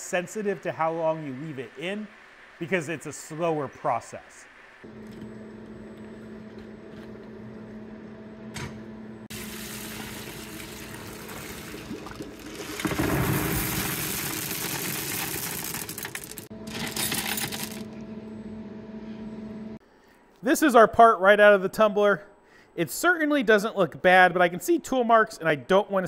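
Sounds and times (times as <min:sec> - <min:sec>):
steady low hum: 0:00.0 - 0:09.5, 0:16.5 - 0:20.1
water pouring into bucket: 0:09.3 - 0:16.5
small media pieces clattering: 0:14.3 - 0:17.9.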